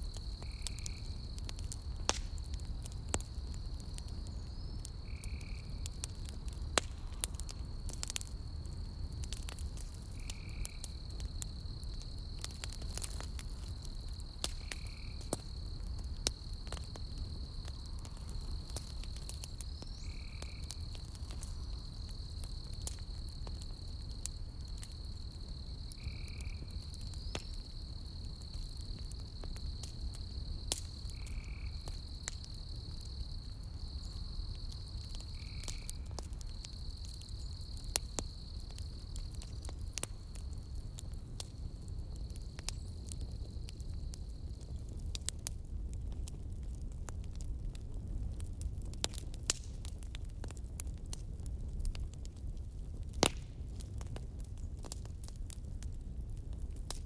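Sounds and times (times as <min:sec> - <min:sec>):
insects chirring: 0:00.0 - 0:45.4
campfire crackling and popping: 0:00.0 - 0:57.0.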